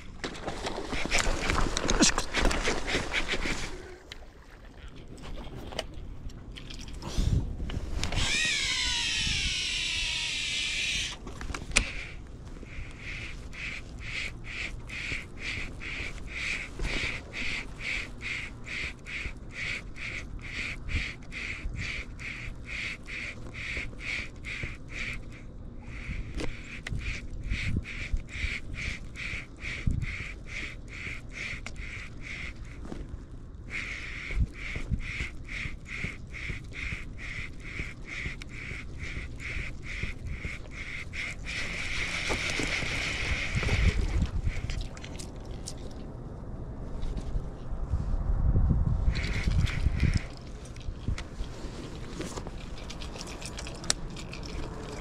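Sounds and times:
fishing reel whirring: 0:08.1 - 0:11.2.

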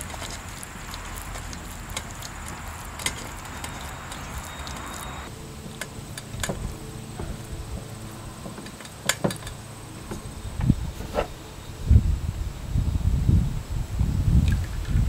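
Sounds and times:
wet dough squelching: 0:00.0 - 0:05.8
sharp clicks: 0:00.0 - 0:06.6
steady hiss: 0:00.0 - 0:15.0.

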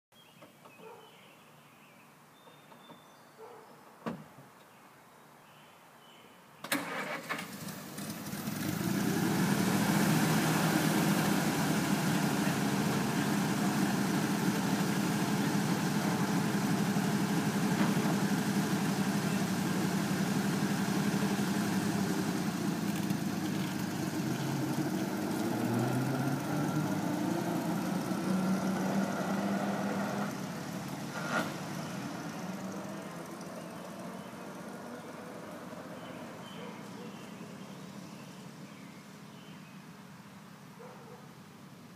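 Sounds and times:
truck engine starting and running: 0:06.6 - 0:37.4.

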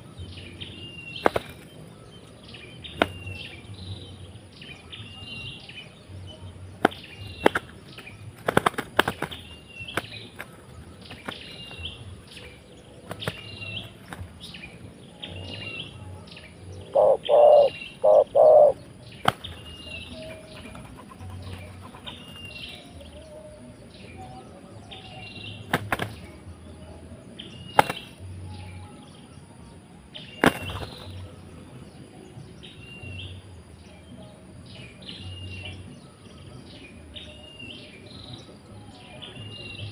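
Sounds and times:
doves wing-flapping and scuffling: 0:01.1 - 0:03.8, 0:06.6 - 0:15.6, 0:18.6 - 0:23.3, 0:25.6 - 0:26.6, 0:27.7 - 0:28.4, 0:30.4 - 0:31.8.

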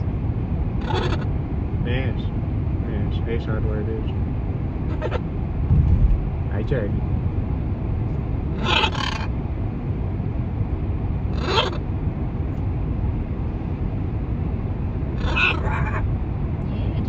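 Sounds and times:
car cabin road rumble: 0:00.0 - 0:17.0
macaw calls: 0:00.8 - 0:01.3, 0:04.9 - 0:05.2, 0:08.6 - 0:09.3, 0:11.3 - 0:11.8, 0:15.2 - 0:16.0.

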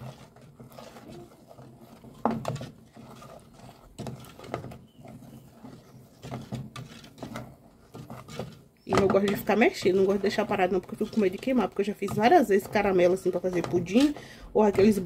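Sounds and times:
spoon scraping metal pan: 0:00.0 - 0:15.0.

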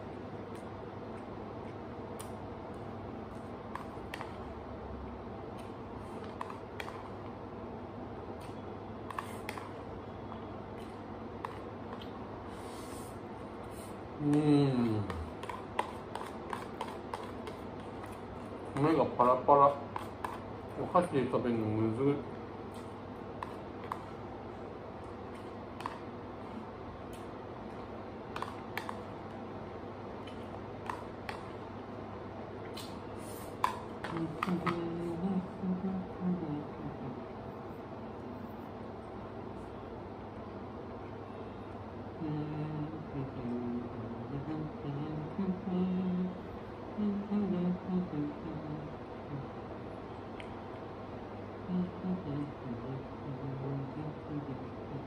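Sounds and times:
low room noise: 0:00.0 - 0:55.0
room hiss: 0:12.1 - 0:15.0.

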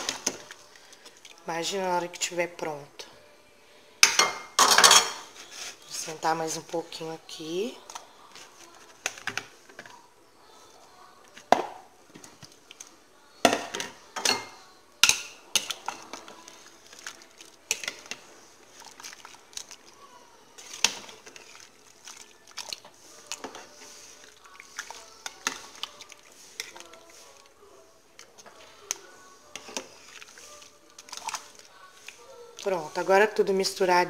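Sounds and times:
spoon clinking against pot: 0:13.5 - 0:16.2.

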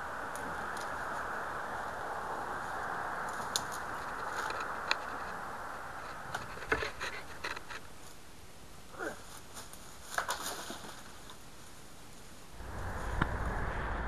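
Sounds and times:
steady hiss: 0:00.0 - 0:14.0
faint clicks and crackles: 0:00.2 - 0:01.4, 0:03.2 - 0:08.2.

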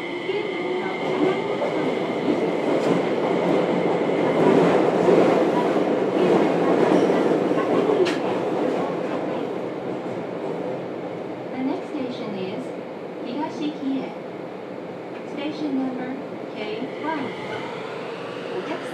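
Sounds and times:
train wheels on rail: 0:00.0 - 0:10.8.

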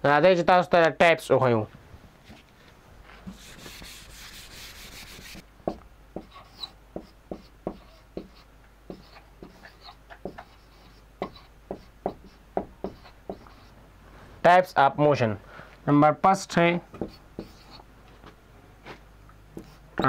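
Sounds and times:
duster rubbing on whiteboard: 0:03.2 - 0:05.4, 0:06.2 - 0:13.8, 0:17.0 - 0:17.8, 0:19.6 - 0:20.0
marker pen writing on whiteboard: 0:03.3 - 0:13.8, 0:16.9 - 0:17.8, 0:19.5 - 0:20.0.

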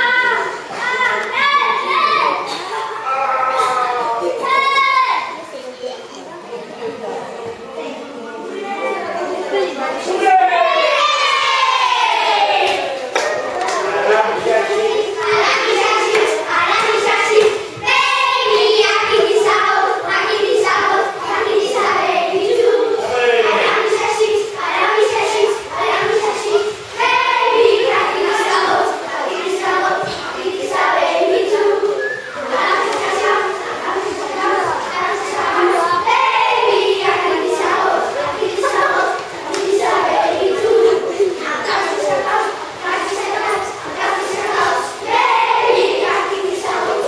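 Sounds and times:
children singing in unison: 0:08.5 - 0:47.0
faint claps: 0:12.6 - 0:19.3, 0:39.1 - 0:39.8.

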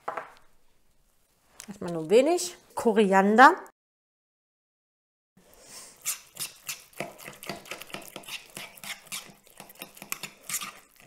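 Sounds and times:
utensil stirring in plastic bowl: 0:06.0 - 0:11.0.

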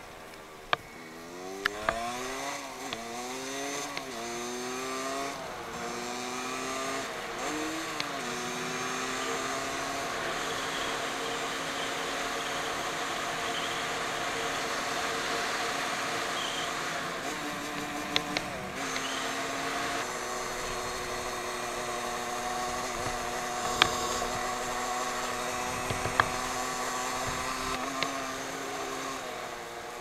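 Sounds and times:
small engine running: 0:01.0 - 0:30.0
sharp clicks or knocks: 0:25.2 - 0:28.2.

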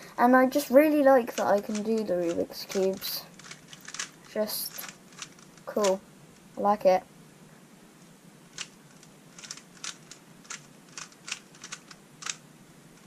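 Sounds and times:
puzzle cube clicking as twisted: 0:01.3 - 0:06.0, 0:08.5 - 0:12.4.

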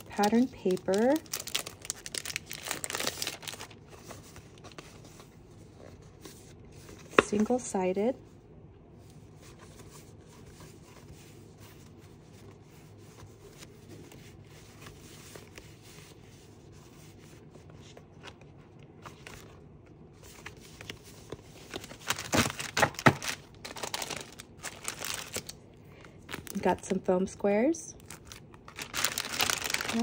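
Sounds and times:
packaging crinkling: 0:00.0 - 0:04.8, 0:20.4 - 0:26.9, 0:28.0 - 0:30.0
faint rustling of craft supplies: 0:00.0 - 0:22.3.

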